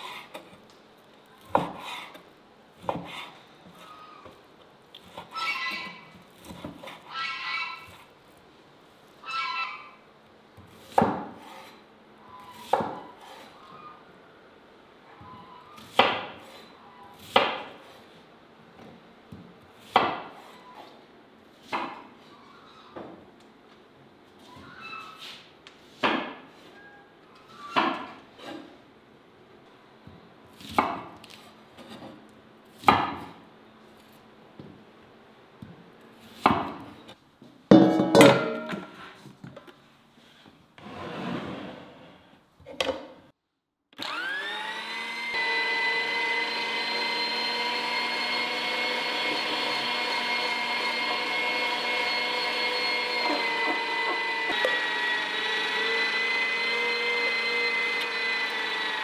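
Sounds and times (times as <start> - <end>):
meat grinder motor whining: 44.0 - 59.0.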